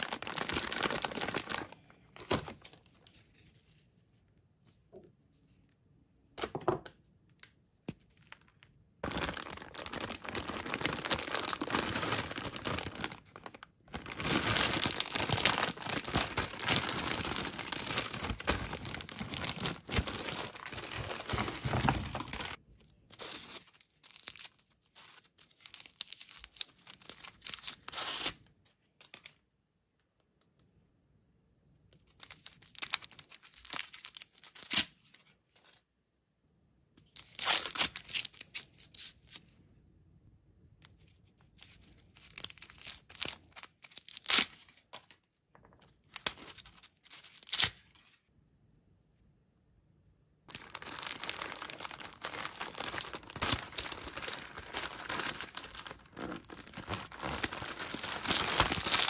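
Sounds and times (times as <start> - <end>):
candy wrappers crinkling: 0.0 - 3.4, 8.0 - 28.4, 41.5 - 48.2, 50.5 - 59.0.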